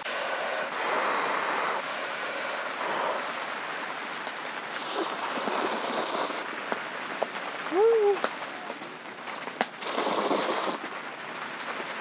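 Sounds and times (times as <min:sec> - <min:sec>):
rain on a tent: 0:00.0 - 0:12.0
noodles being slurped: 0:04.7 - 0:06.5, 0:09.8 - 0:10.8.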